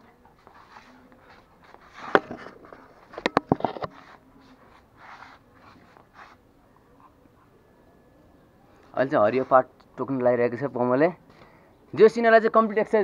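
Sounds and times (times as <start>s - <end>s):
rope toy rustling and scraping: 0.4s - 6.4s.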